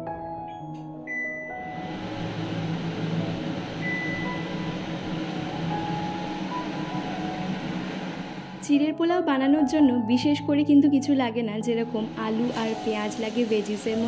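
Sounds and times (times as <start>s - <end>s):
extractor fan humming: 1.5s - 8.8s, 11.8s - 14.0s.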